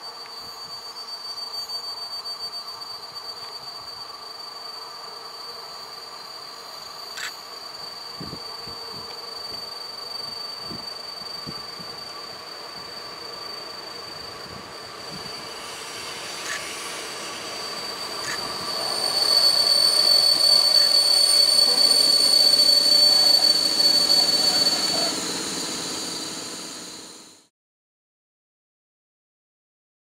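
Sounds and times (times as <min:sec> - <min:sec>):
high-pitched brake squeal: 0:00.0 - 0:27.5
train wheels rolling: 0:07.0 - 0:27.4.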